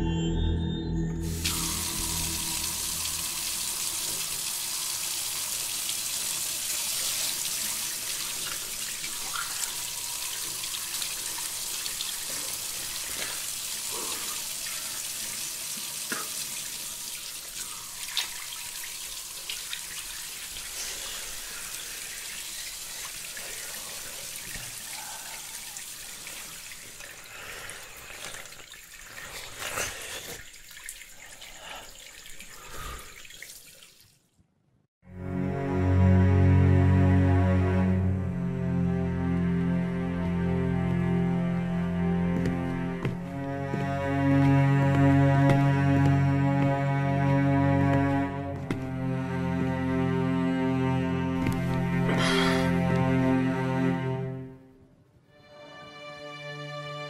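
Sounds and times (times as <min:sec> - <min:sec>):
tap water pouring into basin: 0:01.3 - 0:34.2.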